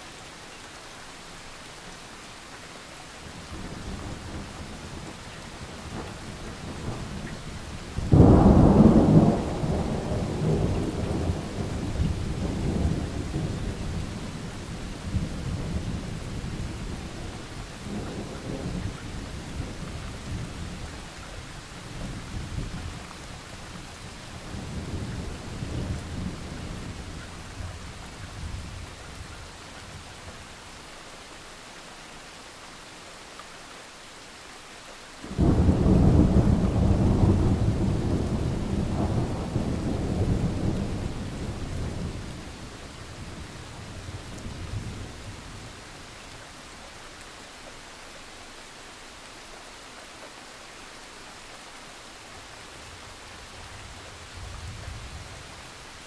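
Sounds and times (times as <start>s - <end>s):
steady rain: 0.0s - 56.0s
thunder rumbling and cracking: 8.0s - 17.0s, 35.3s - 45.2s.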